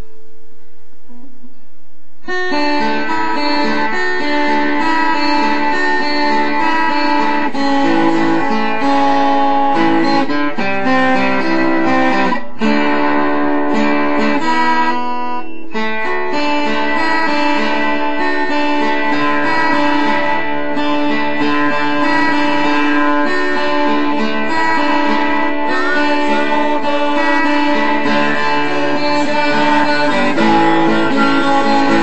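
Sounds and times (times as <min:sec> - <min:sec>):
guitar playing chords: 0:00.0 - 0:32.0.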